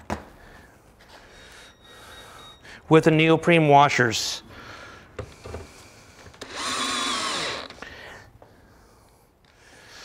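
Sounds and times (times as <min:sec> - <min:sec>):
cordless drill driving screw: 0:06.4 - 0:07.8.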